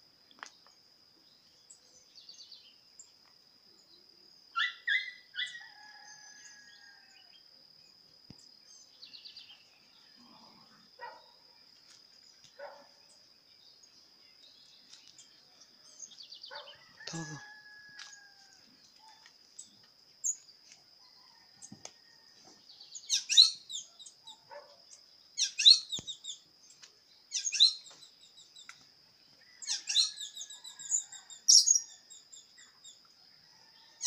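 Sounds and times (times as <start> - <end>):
rooster crowing: 5.4 - 7.3, 16.5 - 18.7, 29.5 - 31.8, 33.4 - 34.0
birds calling: 25.4 - 26.4, 27.3 - 28.8.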